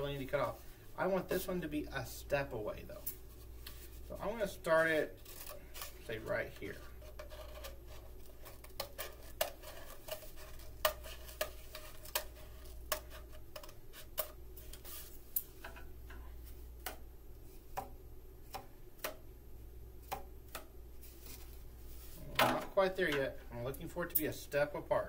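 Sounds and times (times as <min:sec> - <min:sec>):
knife cutting cardboard: 0:04.7 - 0:15.0.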